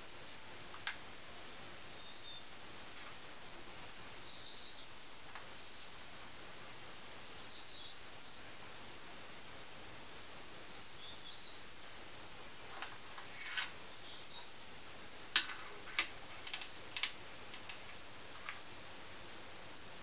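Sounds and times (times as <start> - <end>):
steady hiss: 0.0 - 20.0.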